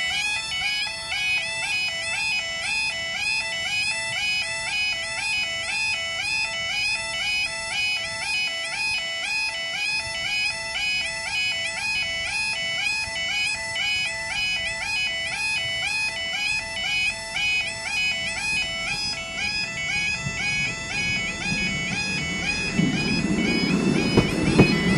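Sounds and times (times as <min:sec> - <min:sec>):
level crossing alarm warbling: 0:00.0 - 0:24.9
low rumble: 0:19.2 - 0:24.9.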